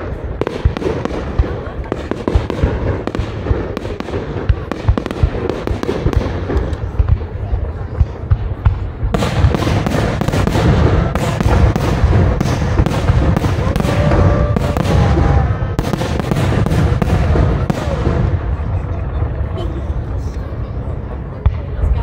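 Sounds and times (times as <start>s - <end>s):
firework booms: 0.0s - 20.3s
firework crackling: 0.0s - 21.8s.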